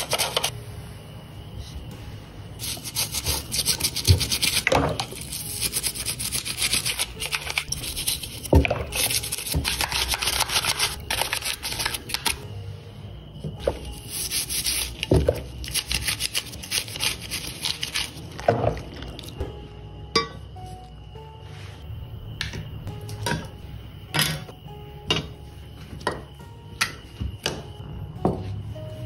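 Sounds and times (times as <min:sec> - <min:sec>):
toothbrush scrubbing: 0:02.6 - 0:12.1, 0:15.7 - 0:18.2.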